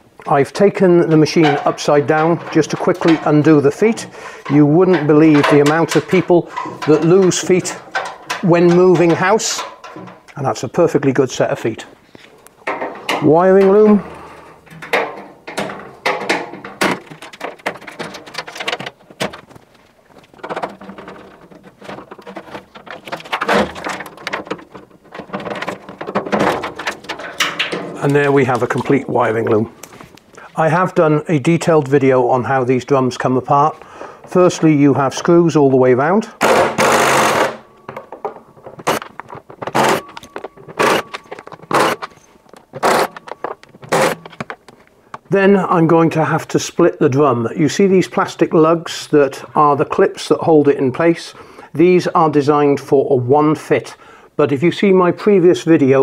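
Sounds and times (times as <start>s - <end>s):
small clicks and knocks: 1.4s - 10.4s, 14.6s - 30.4s, 37.5s - 45.3s.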